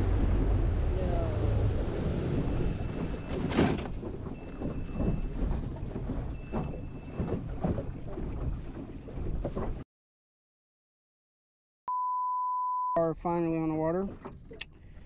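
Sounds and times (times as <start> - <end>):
outboard motor drone: 0.0 - 9.5
hull knocking on waves: 2.4 - 9.8.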